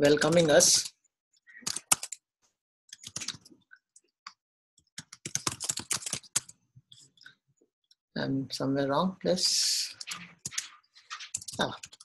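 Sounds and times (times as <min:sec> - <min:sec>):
computer keyboard typing: 0:00.1 - 0:00.9, 0:01.6 - 0:02.2, 0:02.9 - 0:03.5, 0:04.9 - 0:06.6, 0:09.9 - 0:12.0.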